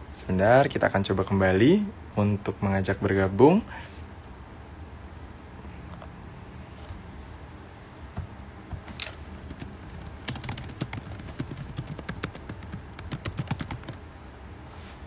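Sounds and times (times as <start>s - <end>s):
fingertips tapping a touchscreen: 8.2s - 14.0s.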